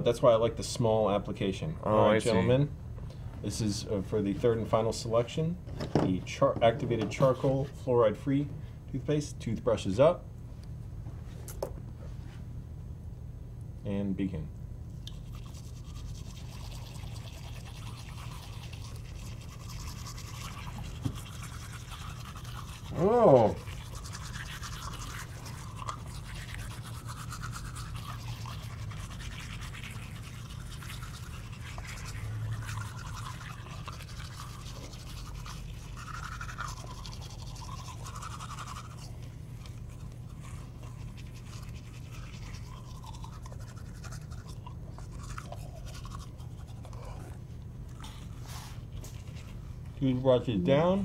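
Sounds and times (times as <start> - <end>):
toothbrushes scrubbing teeth: 7.1 - 7.6, 15.0 - 50.2.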